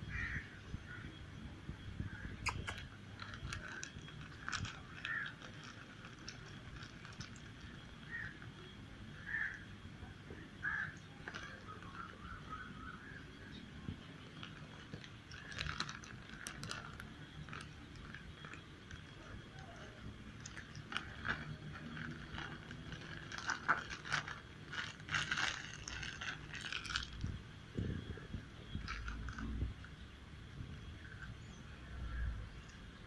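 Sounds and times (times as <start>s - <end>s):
cats crunching chips: 2.5s - 8.6s, 11.2s - 12.4s, 14.1s - 27.3s, 28.3s - 29.8s.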